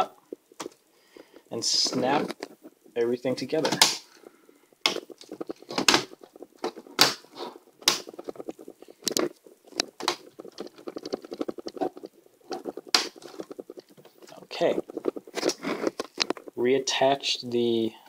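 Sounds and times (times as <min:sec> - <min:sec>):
handling rustle: 0:00.2 - 0:16.6
plastic clips snapping: 0:03.6 - 0:04.2, 0:04.8 - 0:08.3.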